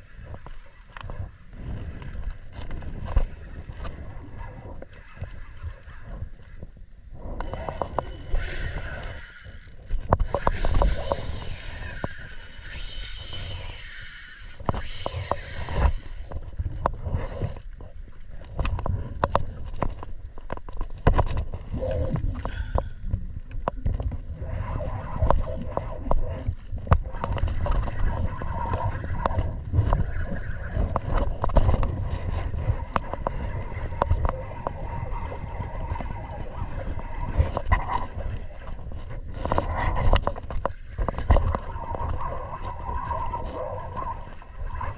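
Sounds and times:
wind buffeting microphone: 0.0 - 20.3, 21.0 - 44.9
water against kayak hull: 0.0 - 44.9
fishing reel clicking: 7.4 - 17.8, 21.8 - 22.1, 25.0 - 31.2, 33.0 - 37.4.

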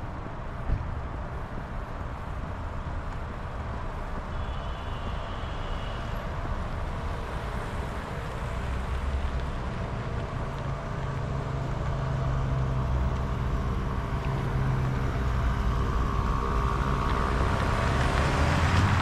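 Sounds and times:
traffic rumble: 0.0 - 19.0
thump: 0.6 - 1.0.

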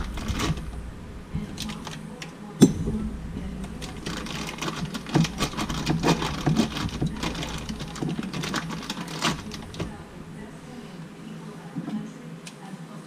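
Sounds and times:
plastic wrapping crinkling: 3.1 - 11.0.

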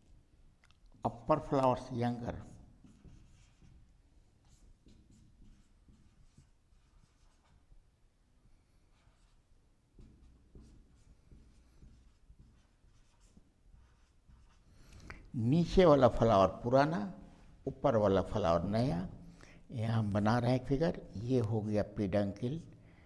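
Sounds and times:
marker pen writing on whiteboard: 1.0 - 7.8, 8.4 - 15.9.

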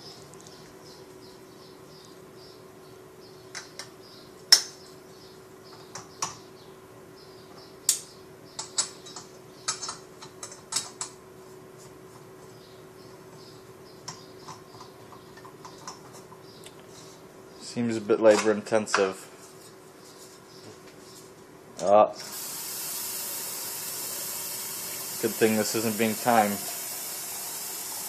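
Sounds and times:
clicks and knocks of stove parts: 8.6 - 11.2.

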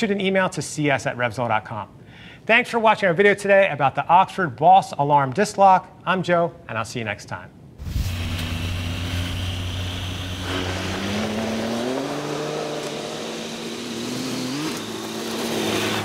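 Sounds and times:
motorcycle engine accelerating: 7.8 - 16.0.

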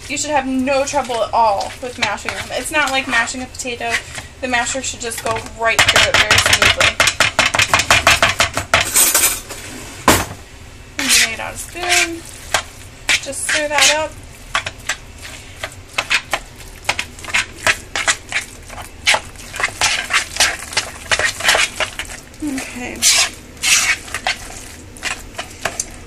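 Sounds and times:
spoon stirring mashed food: 0.0 - 9.0, 11.0 - 26.0
spoon scraping plastic bowl: 0.0 - 9.4, 11.0 - 26.0.

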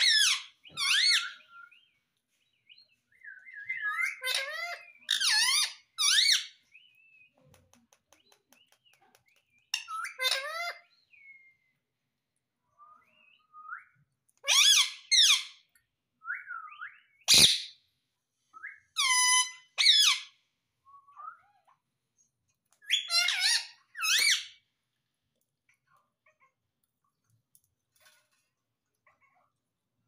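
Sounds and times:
parakeet calling high-pitched: 3.7 - 6.5, 14.4 - 15.6, 19.0 - 20.4, 22.9 - 24.6.

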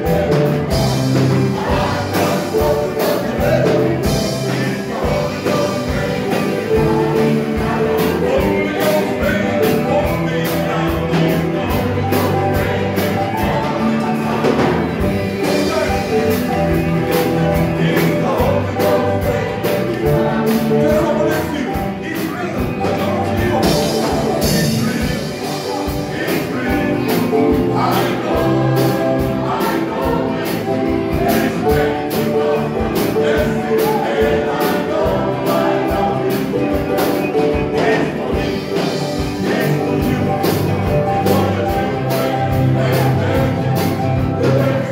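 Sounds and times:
drum kit: 0.0 - 44.9
electric guitars: 0.0 - 44.9
keyboard: 0.0 - 44.9
men singing through microphones: 0.0 - 44.9.

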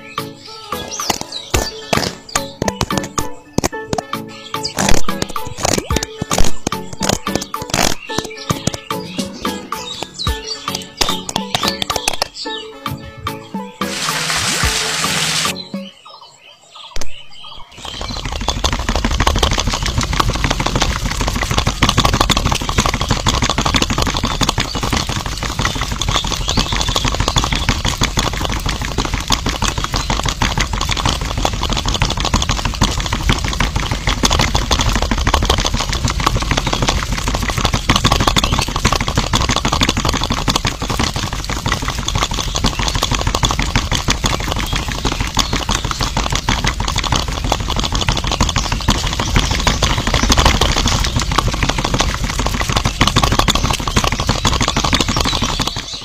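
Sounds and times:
toy mixer motor clattering: 13.9 - 15.6, 17.8 - 56.0.

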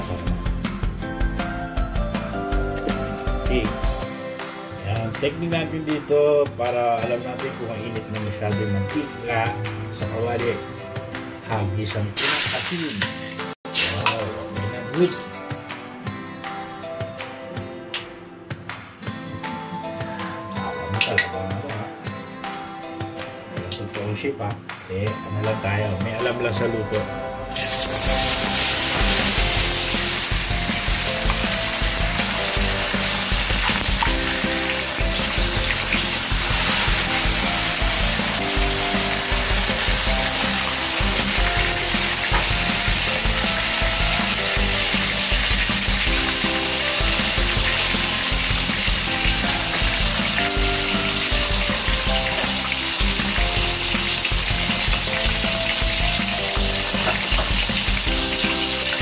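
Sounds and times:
fish sizzling in hot oil: 12.2 - 14.6, 27.5 - 59.0.

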